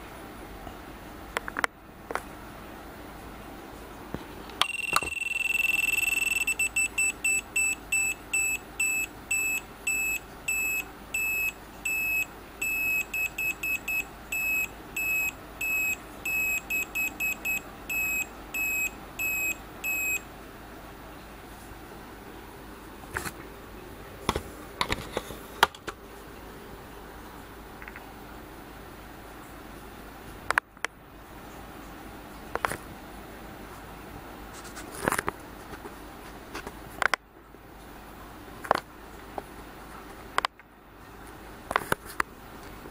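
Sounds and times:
electronic toy beeping tune: 4.6s - 20.2s.

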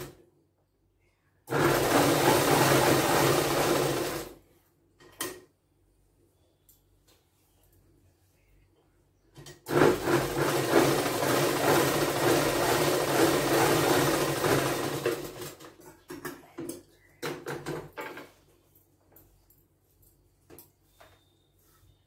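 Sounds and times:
sewing machine stitching: 1.5s - 4.4s, 9.6s - 15.7s.

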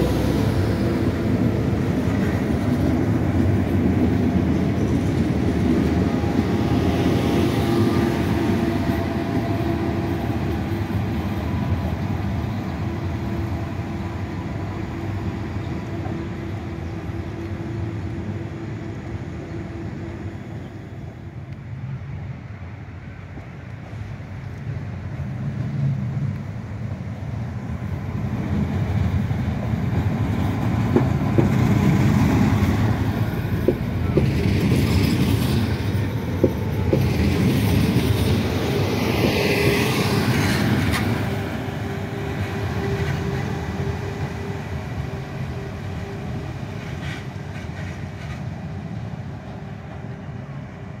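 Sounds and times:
train rolling: 0.0s - 51.0s
train whine: 0.0s - 51.0s
train wheels clicking: 28.5s - 44.6s, 46.6s - 48.8s.

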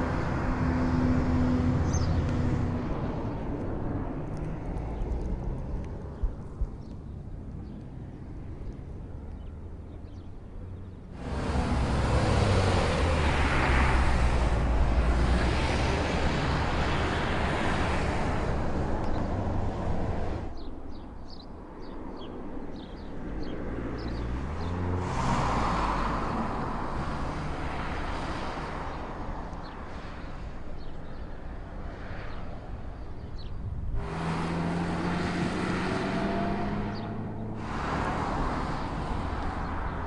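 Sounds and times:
car engine accelerating: 11.2s - 20.4s, 34.0s - 40.0s
car driving past: 11.2s - 20.7s, 23.8s - 29.1s, 34.0s - 40.0s.

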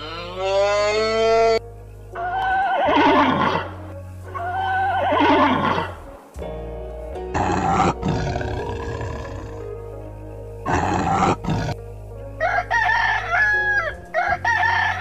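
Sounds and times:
horse whinnying: 2.2s - 3.8s, 4.4s - 6.0s
tiger growling: 2.3s - 6.2s, 7.2s - 9.8s, 10.6s - 11.9s.

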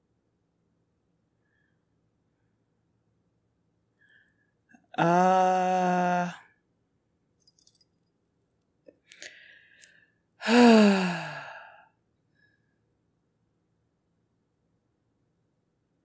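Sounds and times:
held vocal note: 4.9s - 6.4s
woman sighing: 4.9s - 6.5s, 10.4s - 11.8s.

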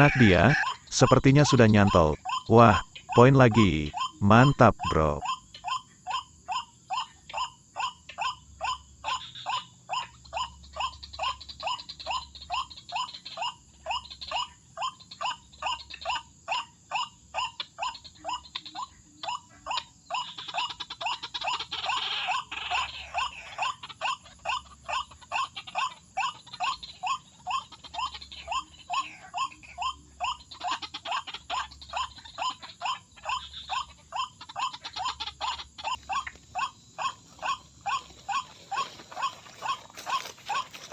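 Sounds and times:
waterhen calling: 0.0s - 5.2s, 27.1s - 40.9s.

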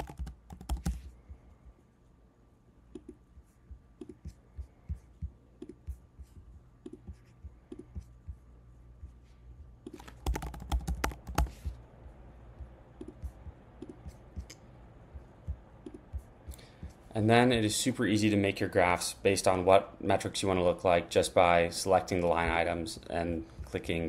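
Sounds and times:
computer keyboard typing: 0.0s - 1.1s, 6.8s - 8.0s, 9.8s - 11.7s, 13.0s - 14.6s
mouse clicks: 2.9s - 3.2s.

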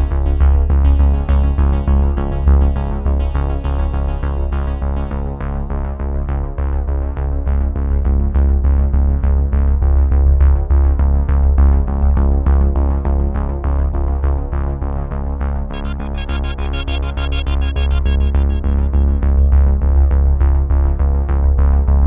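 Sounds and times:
deep synth bass: 0.0s - 14.5s, 15.7s - 22.0s
repeated synthesizer notes: 15.7s - 20.1s.

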